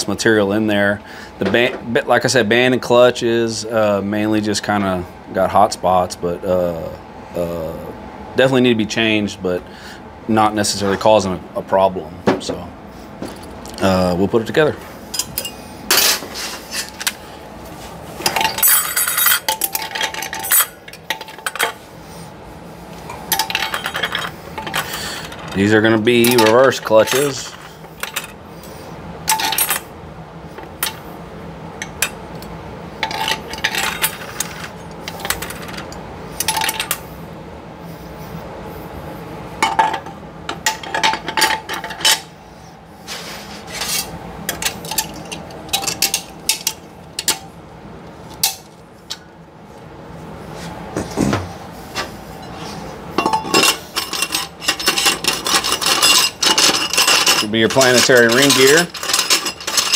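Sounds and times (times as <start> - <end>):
metal clutch plates clinking: 53.2 - 59.9.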